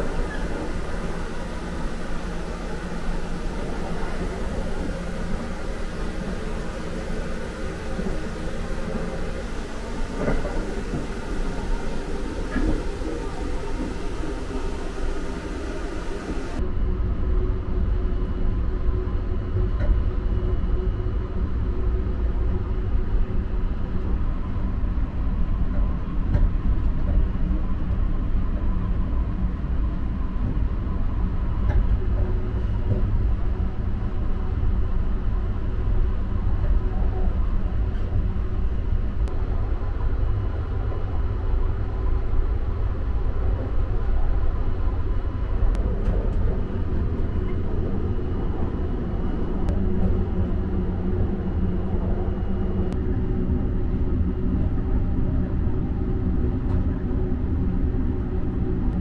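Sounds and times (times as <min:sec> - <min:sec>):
faint hum tones: 0:00.0 - 0:59.0
train rumble inside carriage: 0:00.0 - 0:59.0.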